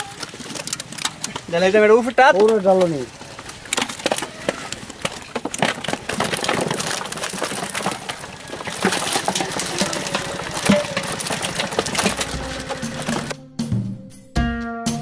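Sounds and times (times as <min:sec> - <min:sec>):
fish poured into plastic crate: 0:00.0 - 0:13.3
fish flapping and slapping: 0:00.0 - 0:13.4.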